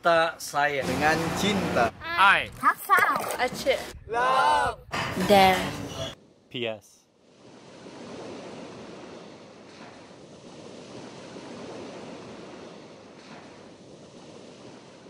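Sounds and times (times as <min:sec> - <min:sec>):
ocean surf breaking on shore: 0:07.3 - 0:15.0.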